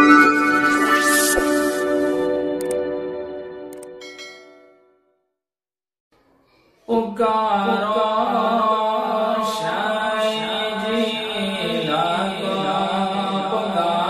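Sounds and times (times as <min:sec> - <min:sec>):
devotional chanting: 0:06.9 - 0:14.0.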